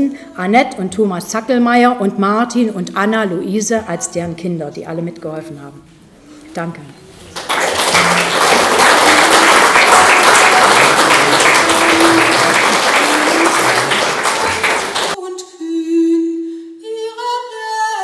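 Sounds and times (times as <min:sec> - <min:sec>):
audience applauding: 0:07.3 - 0:15.2.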